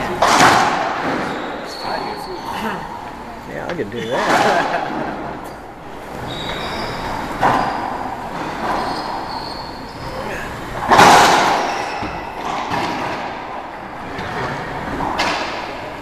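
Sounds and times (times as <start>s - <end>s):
ball cracking off racquets and walls: 0.0s - 1.5s, 10.8s - 15.8s.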